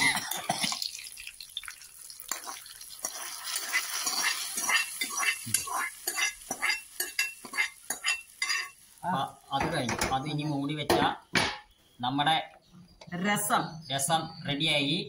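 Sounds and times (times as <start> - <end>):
hot oil crackling and sizzling: 0.6 - 9.6
ladle scraping a pan: 2.4 - 8.8.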